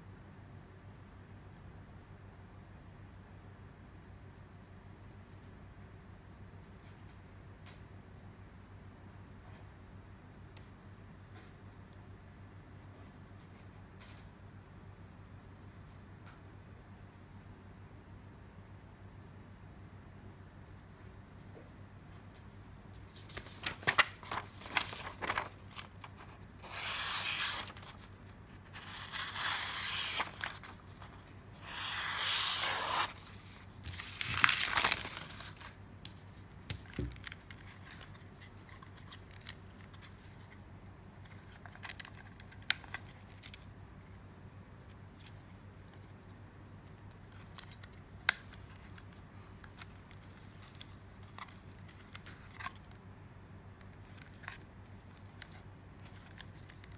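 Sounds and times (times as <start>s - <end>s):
knife blade scraping in sheath: 26.6s - 27.7s.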